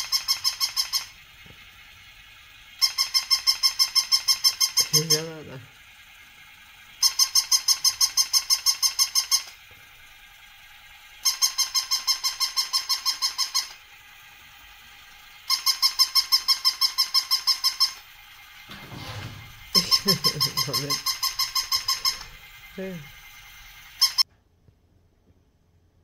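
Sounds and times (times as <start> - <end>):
toy puppy electronic bark: 0.0 - 1.3, 2.6 - 5.6, 6.9 - 9.6, 11.1 - 14.4, 15.3 - 18.6, 19.7 - 24.2.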